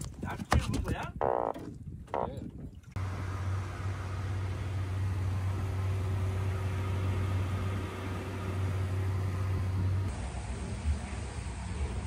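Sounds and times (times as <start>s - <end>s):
water rushing in wake: 2.9s - 11.2s
boat engine droning: 2.9s - 12.0s.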